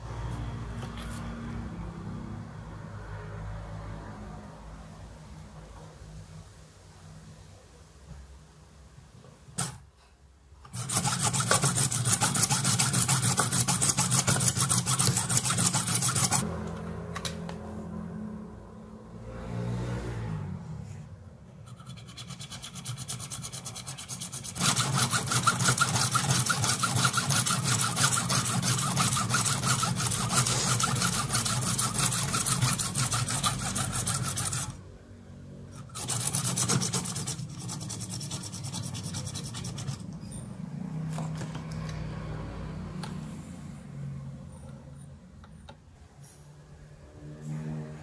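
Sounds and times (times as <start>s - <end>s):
hacksaw cutting through metal: 9.6s - 9.8s, 10.7s - 16.4s, 21.7s - 34.8s, 35.8s - 40.1s.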